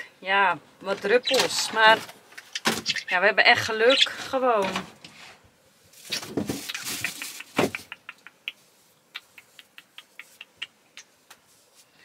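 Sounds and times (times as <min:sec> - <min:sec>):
soft rustle: 0:04.0 - 0:07.6, 0:08.5 - 0:12.0
kiss smacks: 0:06.6 - 0:11.4.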